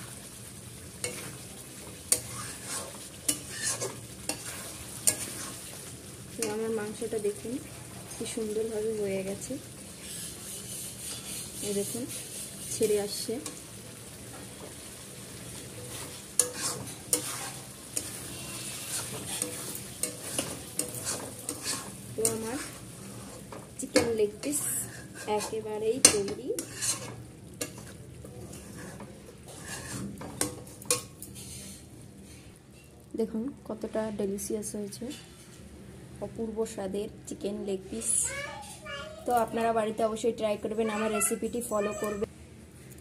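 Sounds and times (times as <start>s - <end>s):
soft sizzle: 0.0s - 43.0s
metal spatula scraping a pan: 1.0s - 7.0s, 10.0s - 13.7s, 15.6s - 32.9s.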